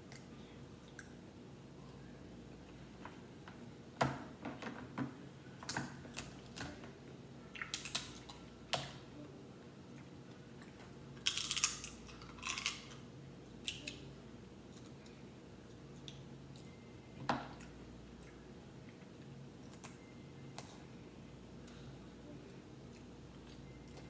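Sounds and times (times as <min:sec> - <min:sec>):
crab shells cracking: 0:07.6 - 0:08.3, 0:11.2 - 0:13.0.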